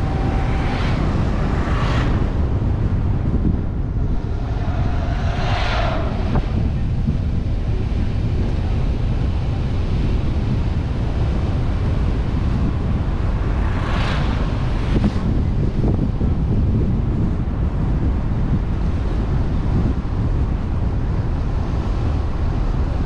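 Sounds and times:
car road and engine rumble: 0.0s - 23.0s
wind buffeting the microphone: 0.0s - 23.0s
brief whooshes: 3.9s - 7.4s.

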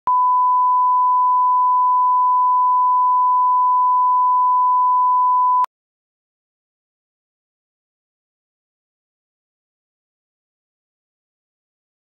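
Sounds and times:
steady test tone beep: 0.1s - 5.7s.

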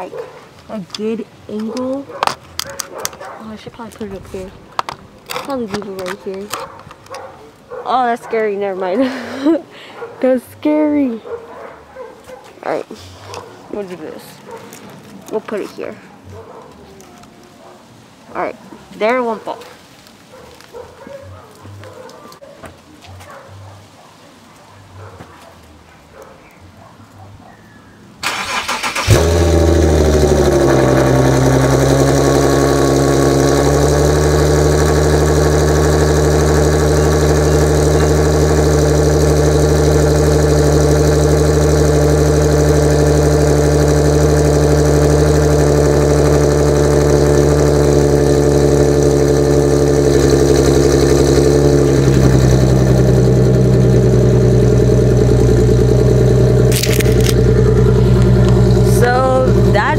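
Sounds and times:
car engine starting and idling: 1.6s - 7.3s, 28.2s - 59.9s.

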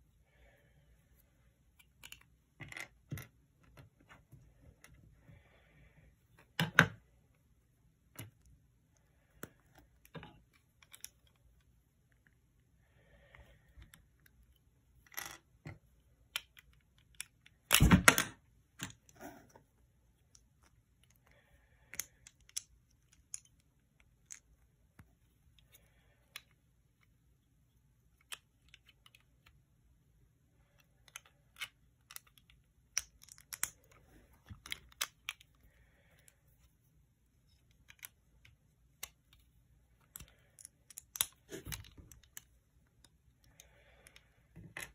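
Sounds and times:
plastic bricks clicking and clattering: 21.9s - 24.6s, 30.8s - 35.6s, 40.0s - 44.9s.

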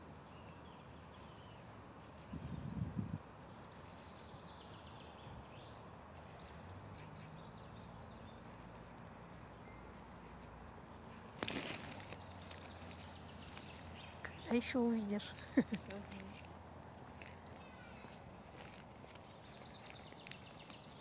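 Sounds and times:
faint birdsong chirps and trills: 0.0s - 21.0s
low rumble on microphone: 2.2s - 3.2s.

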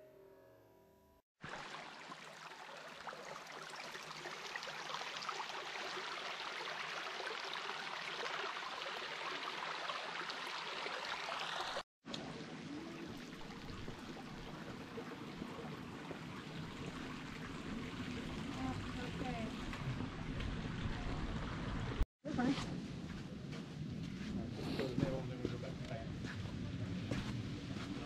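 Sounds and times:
running splashing water: 1.4s - 22.0s.

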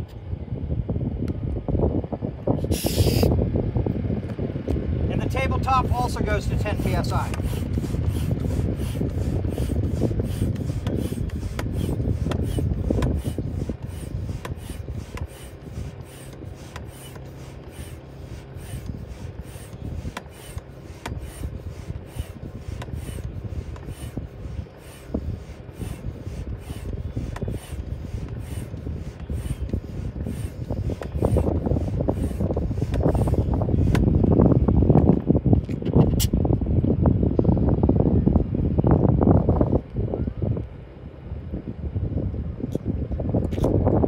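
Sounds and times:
hand pump rasping air: 2.6s - 3.4s, 5.2s - 35.1s.

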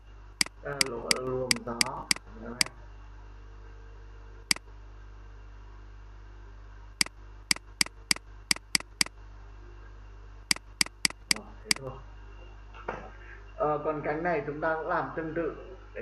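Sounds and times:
low electrical hum: 0.0s - 16.0s
computer mouse clicking: 0.4s - 2.7s, 7.5s - 9.1s, 10.5s - 11.9s.

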